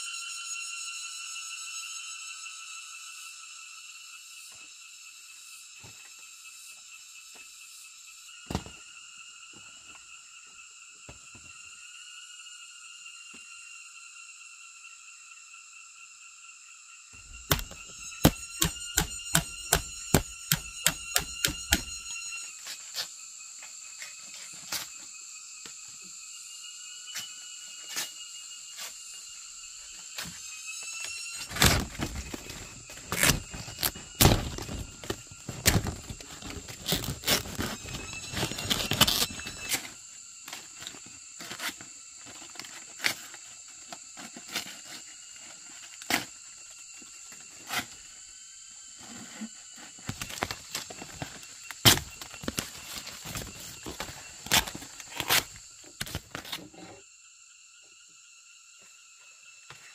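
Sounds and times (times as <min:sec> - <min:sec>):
insects chirring: 0:00.0 - 0:59.9.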